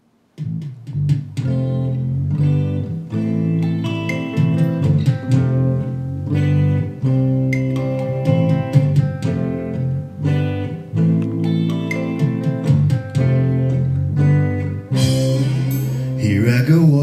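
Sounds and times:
guitar strummed and picked: 0.4 - 17.0.

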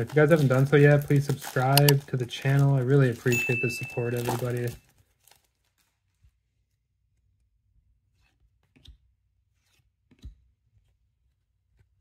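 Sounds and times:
trading cards clicking and rustling: 0.0 - 4.8.

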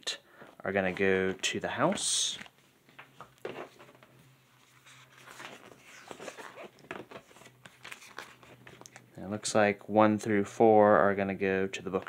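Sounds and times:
paper booklet pages turning: 0.8 - 9.1.

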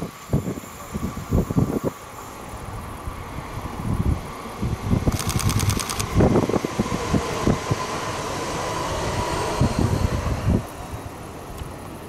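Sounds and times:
electric train whine: 0.0 - 12.0.

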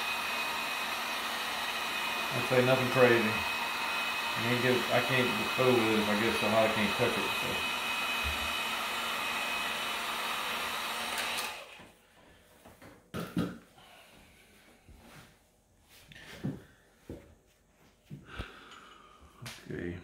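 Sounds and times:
heat gun blowing air: 0.0 - 11.9.

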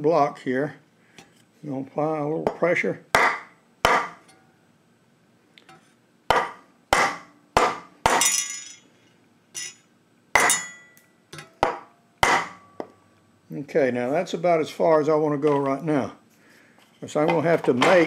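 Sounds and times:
hammer striking wooden block: 2.5 - 4.2, 6.3 - 8.4, 11.6 - 12.9
metallic ring: 8.2 - 8.9, 9.5 - 11.6.

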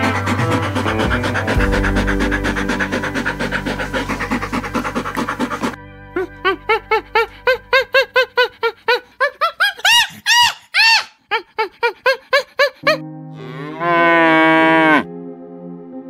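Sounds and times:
chimpanzee hooting and screaming: 0.0 - 15.0
cow mooing: 13.4 - 15.1.

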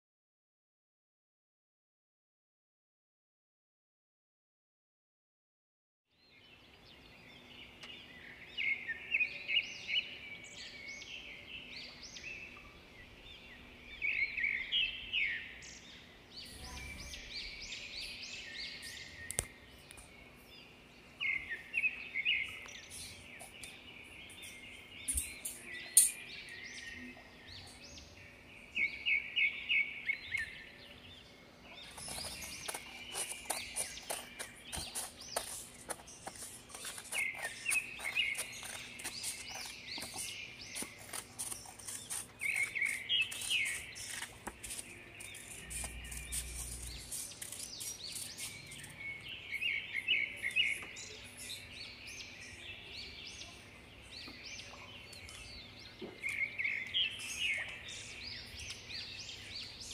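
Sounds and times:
small birds chirping: 6.1 - 59.9
scissors cutting paper: 31.8 - 48.9.

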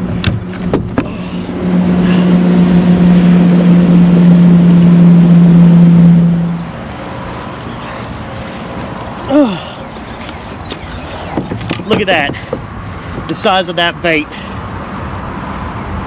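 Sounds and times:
loud steady motor hum: 0.0 - 10.0.

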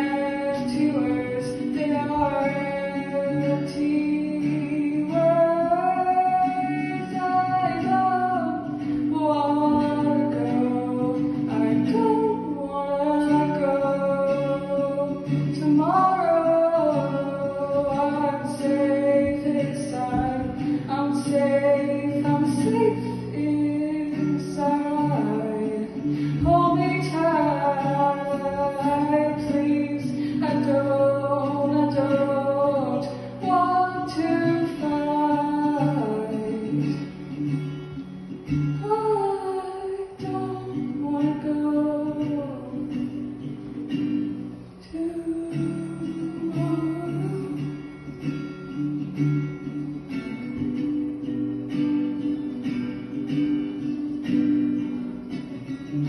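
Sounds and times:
acoustic guitar chords: 0.0 - 56.0.

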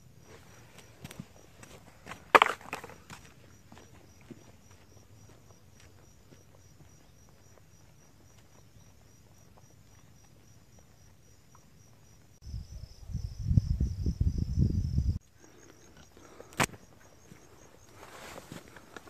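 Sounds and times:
insects chirping: 0.0 - 19.0
low rumbling on microphone: 12.5 - 15.2.

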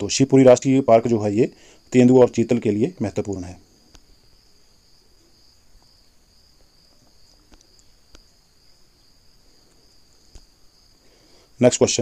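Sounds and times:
faint high-pitched chirring: 0.0 - 12.0
soft clicks: 6.9 - 8.4.

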